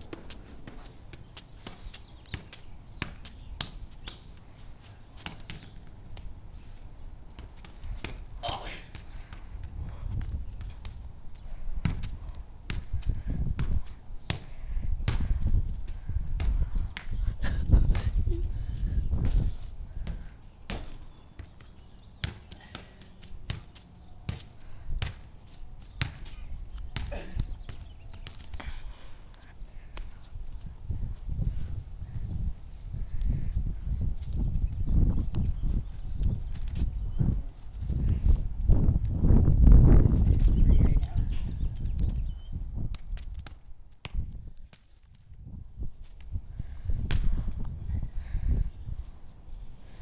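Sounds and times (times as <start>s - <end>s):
juggling balls slapping into hands: 11.8s - 17.2s, 42.8s - 45.3s, 47.0s - 47.4s.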